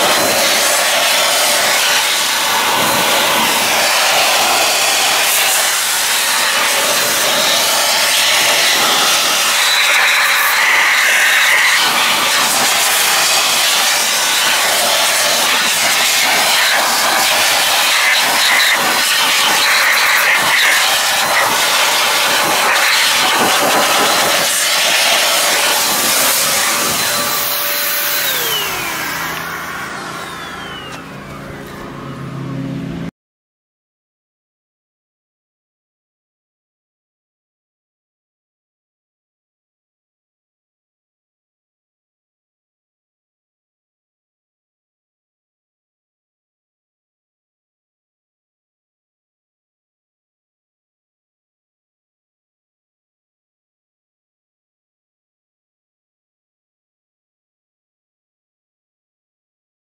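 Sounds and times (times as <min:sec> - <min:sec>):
air dryer blowing: 0:00.0 - 0:33.1
motor whine winding down: 0:00.0 - 0:33.1.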